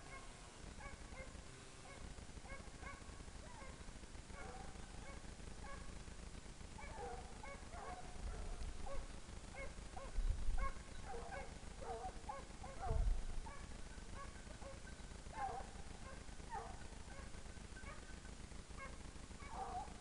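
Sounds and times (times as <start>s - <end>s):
hounds baying in the distance: 0.0s - 6.0s, 6.8s - 20.0s
low rumbles on microphone: 12.8s - 13.5s.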